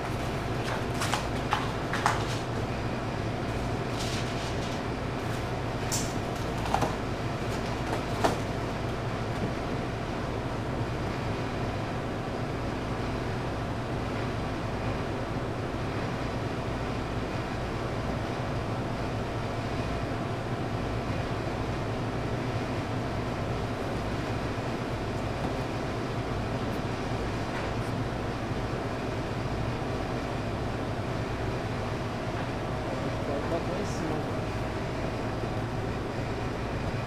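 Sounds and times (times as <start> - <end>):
cardboard boxes being folded: 0.0 - 2.7, 3.4 - 8.9
kitchen equipment humming: 0.0 - 10.4.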